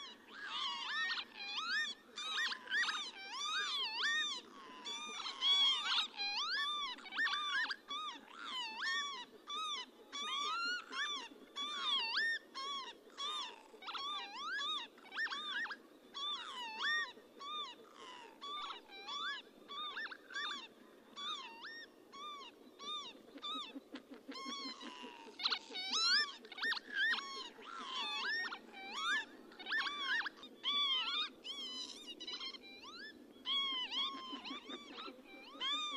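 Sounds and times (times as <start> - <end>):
lapwings calling: 0.0 - 35.9.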